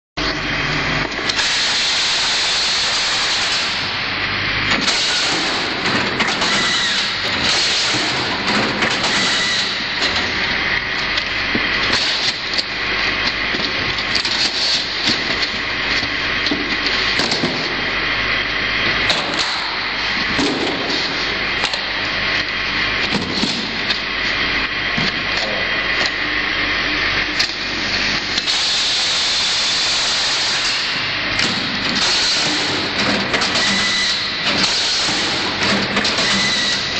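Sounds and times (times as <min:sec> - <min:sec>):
packing machine running: 0:00.2 - 0:36.9.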